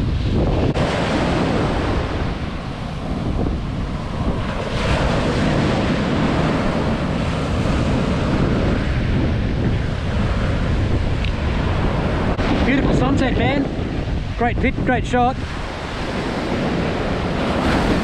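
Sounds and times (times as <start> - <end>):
ocean surf breaking: 0.0 - 18.0
wind rumble on microphone: 0.0 - 18.0.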